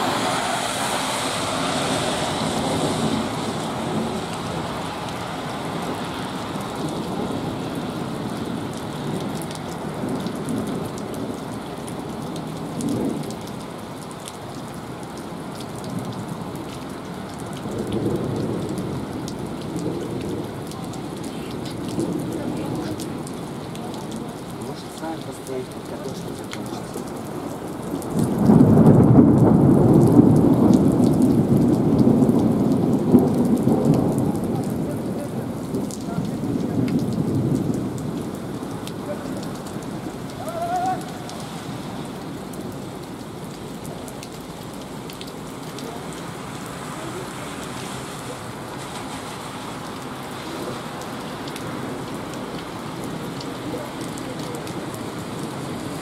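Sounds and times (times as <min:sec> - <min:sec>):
heavy rain pouring: 0:00.0 - 0:56.0
thunder rumbling: 0:17.6 - 0:24.6, 0:27.0 - 0:43.8.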